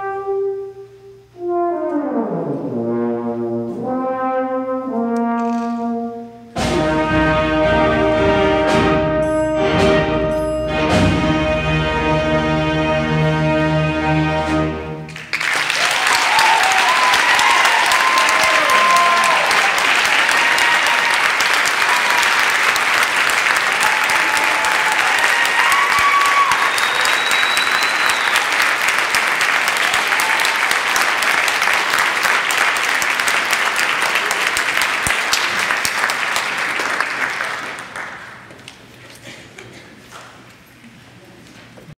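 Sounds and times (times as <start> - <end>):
audience applauding: 15.1 - 38.9.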